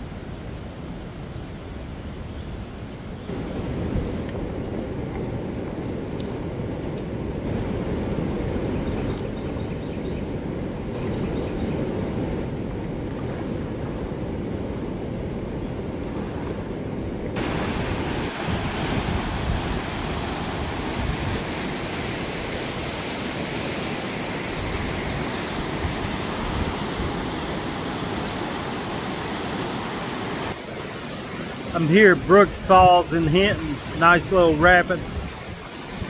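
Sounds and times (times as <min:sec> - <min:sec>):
whitewater rushing: 0:17.4 - 0:36.0.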